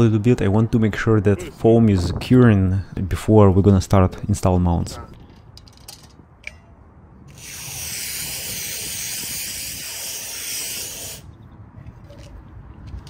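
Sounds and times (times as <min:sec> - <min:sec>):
spray foam gun hissing: 0:07.4 - 0:11.2.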